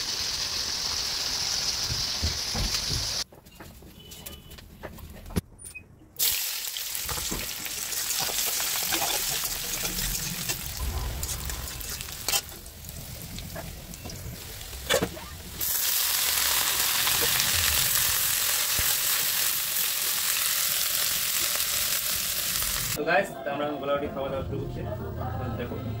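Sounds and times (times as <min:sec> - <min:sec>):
loud even sizzle: 0:00.0 - 0:03.2, 0:06.2 - 0:23.0
vegetables frying in oil: 0:00.0 - 0:03.2, 0:06.2 - 0:23.0
metal spatula stirring: 0:08.0 - 0:15.1.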